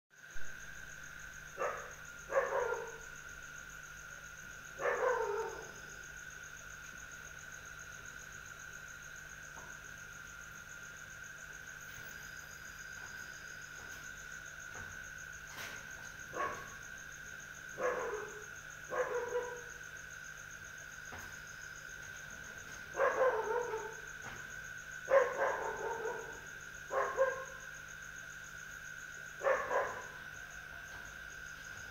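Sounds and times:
high insect drone: 0:00.1 - 0:31.9
dog barking: 0:01.6 - 0:03.1, 0:04.8 - 0:05.9, 0:16.3 - 0:16.8, 0:17.8 - 0:19.7, 0:22.9 - 0:24.1, 0:25.1 - 0:27.6, 0:29.4 - 0:30.3.

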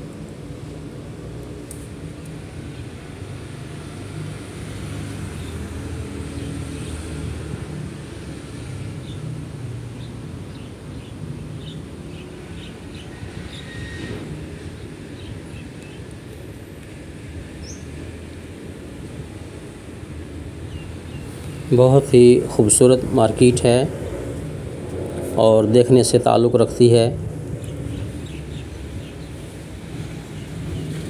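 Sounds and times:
shopping hall low rumble: 0:21.0 - 0:31.0.

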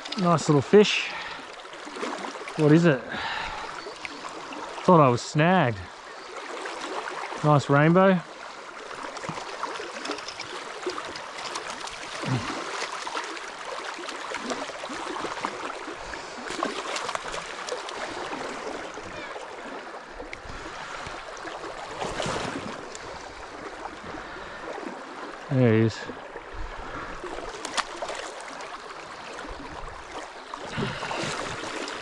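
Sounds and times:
river water rippling over stones: 0:00.0 - 0:32.0
fish splashing: 0:08.8 - 0:19.9, 0:27.2 - 0:32.0.

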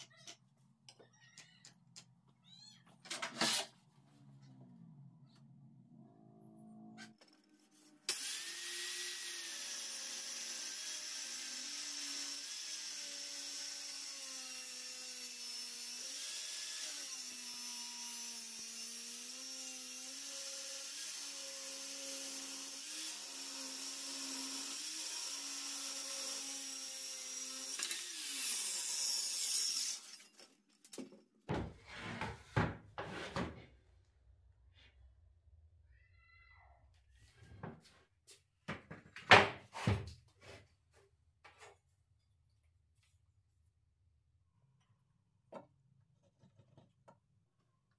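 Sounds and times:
circular saw cutting wood: 0:07.1 - 0:30.3.

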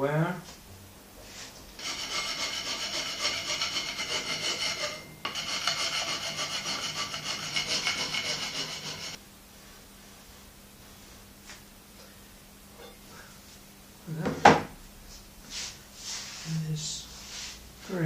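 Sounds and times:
metal-on-metal rasping: 0:01.8 - 0:09.2.

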